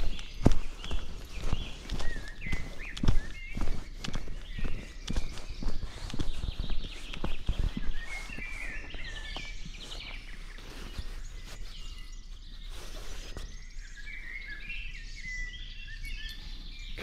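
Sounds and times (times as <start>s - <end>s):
footsteps on dirt trail: 0.0s - 14.2s
birds singing: 0.0s - 17.0s.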